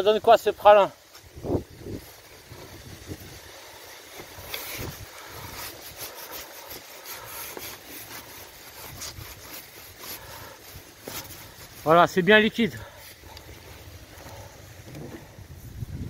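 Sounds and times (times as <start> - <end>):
wind rumble on microphone: 1.3 - 3.6, 14.6 - 16.0
hoe scraping through mud: 2.0 - 15.6.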